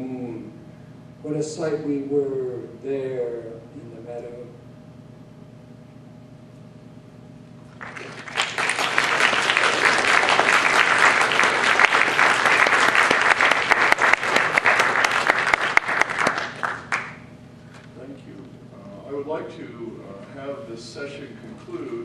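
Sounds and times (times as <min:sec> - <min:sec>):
audience applauding: 0:07.7 - 0:17.2.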